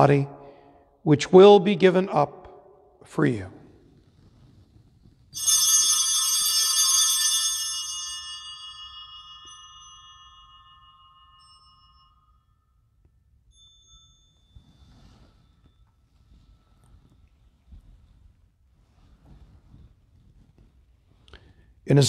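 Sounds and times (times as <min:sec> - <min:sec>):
altar bells ringing: 0:05.4 - 0:16.8.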